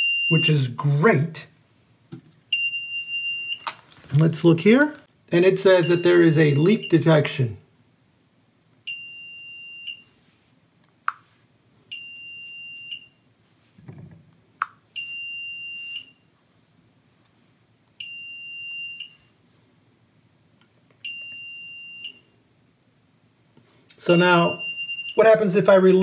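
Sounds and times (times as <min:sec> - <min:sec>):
leak alarm beeping: 0:00.0 - 0:00.5, 0:05.8 - 0:07.0, 0:08.9 - 0:10.1, 0:11.9 - 0:13.2, 0:15.0 - 0:16.2, 0:21.0 - 0:22.3, 0:24.1 - 0:25.2.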